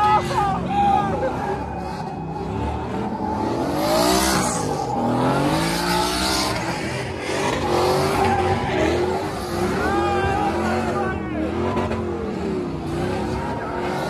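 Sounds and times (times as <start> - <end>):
tyres squealing on pavement: 0.0 - 12.2
truck engine revving: 0.0 - 14.0.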